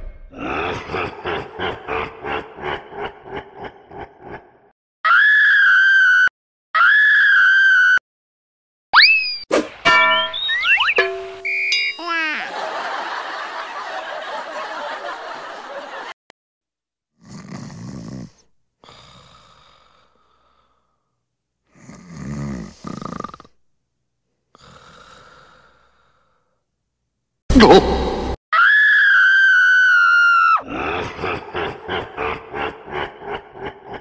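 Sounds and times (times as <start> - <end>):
person snoring: 17.2 - 21.1, 21.7 - 23.6, 24.5 - 26.5.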